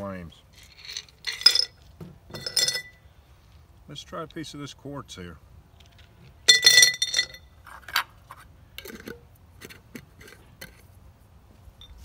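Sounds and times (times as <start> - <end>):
stones rattling against glass jar: 0.5 - 3.0, 6.5 - 10.8.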